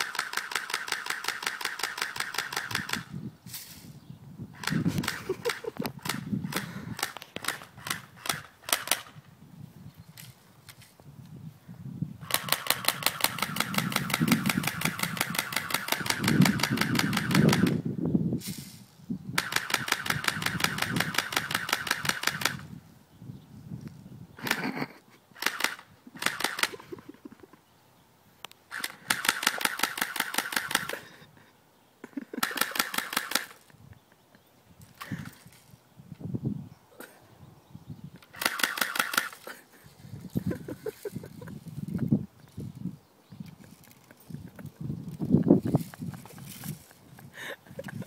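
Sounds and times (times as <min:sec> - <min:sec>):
toy rifle rapid clicking: 0:00.0 - 0:03.1, 0:04.6 - 0:09.2, 0:12.2 - 0:17.8, 0:19.4 - 0:22.6, 0:25.4 - 0:26.8, 0:28.7 - 0:31.0, 0:32.4 - 0:33.6, 0:38.3 - 0:39.4.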